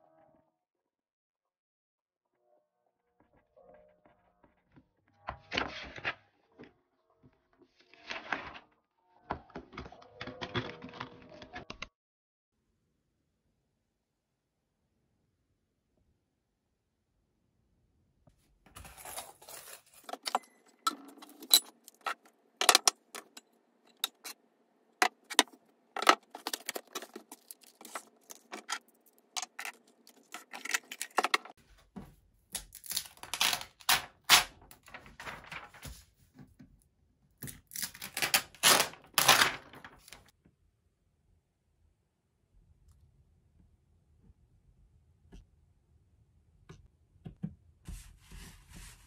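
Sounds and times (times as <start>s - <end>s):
small items clicking and clinking: 18.7s - 24.4s, 25.0s - 31.6s.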